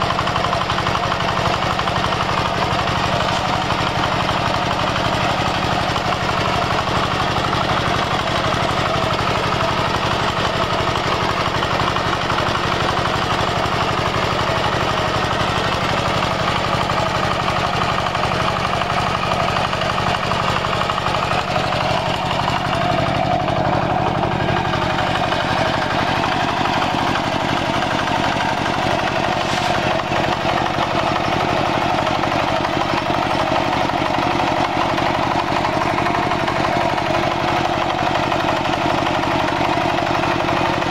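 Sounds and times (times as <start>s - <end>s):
diesel engine knocking under load: 0.0s - 40.9s.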